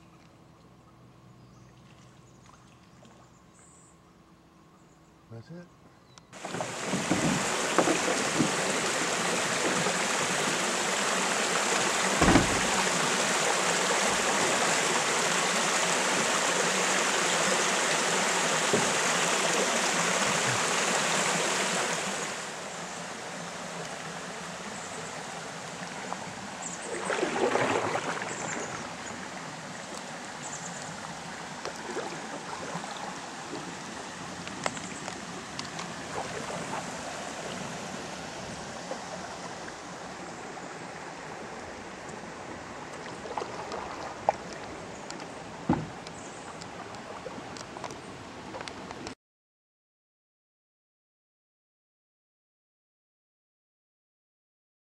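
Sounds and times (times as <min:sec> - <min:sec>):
water splashing: 0:06.4 - 0:22.5, 0:25.3 - 0:48.7
waterfall pouring into lake: 0:06.4 - 0:22.7, 0:23.3 - 0:29.4, 0:30.2 - 0:34.2
low thump: 0:12.2 - 0:13.1, 0:45.7 - 0:46.0.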